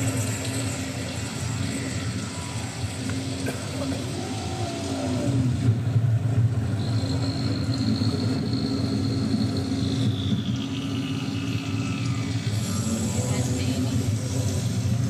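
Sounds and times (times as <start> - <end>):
thin high tone sliding downward: 0.0 - 3.4, 6.8 - 14.6
low rumbling drone: 0.0 - 15.0.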